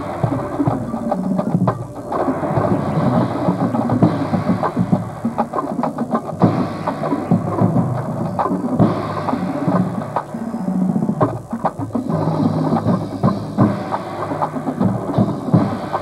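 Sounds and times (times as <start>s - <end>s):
drumline playing rapid strikes: 0.0s - 16.0s.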